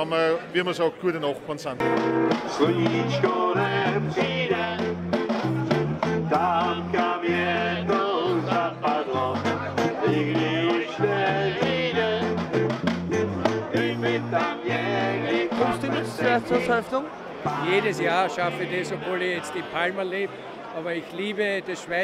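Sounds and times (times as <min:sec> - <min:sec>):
bass line: 0:01.8 - 0:16.8
strummed guitars: 0:01.8 - 0:16.8
people singing: 0:02.3 - 0:16.8, 0:17.4 - 0:20.1.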